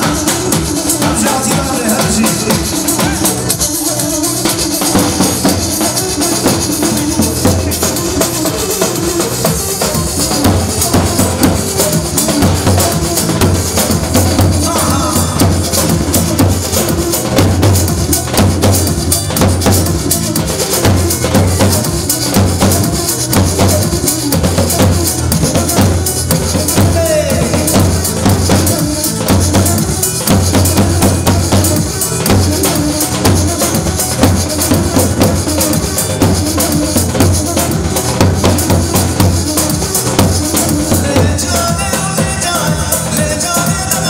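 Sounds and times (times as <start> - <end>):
electronic keyboard dance music: 0.0 - 44.0
loud steady drum beat: 0.0 - 44.0.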